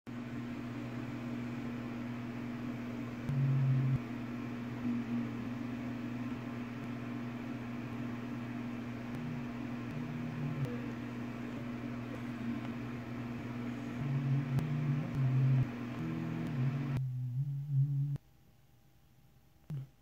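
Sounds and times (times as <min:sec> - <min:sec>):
steady low drone: 0:09.0 - 0:18.2.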